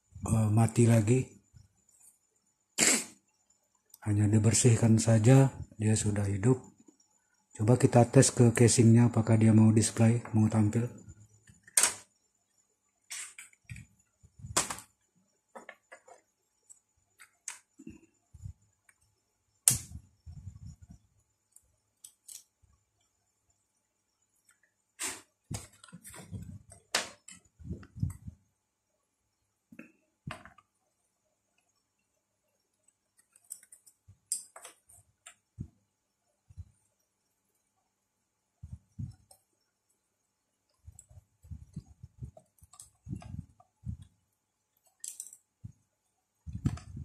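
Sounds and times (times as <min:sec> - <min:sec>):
objects clicking and knocking on workbench: 0:15.5 - 0:16.3.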